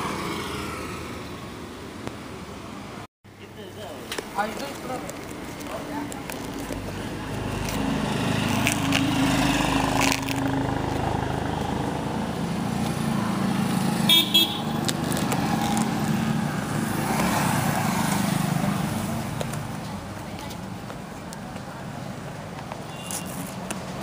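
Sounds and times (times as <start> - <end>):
road traffic: 0.0 - 24.0
vehicle horn tooting: 14.1 - 14.8, 22.9 - 23.4.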